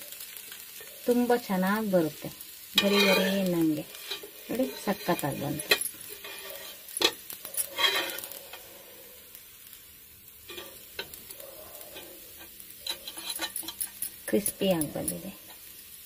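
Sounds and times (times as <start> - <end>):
faint sizzle: 0.0 - 16.0
metal spatula scraping a pan: 2.5 - 9.3, 10.4 - 15.5.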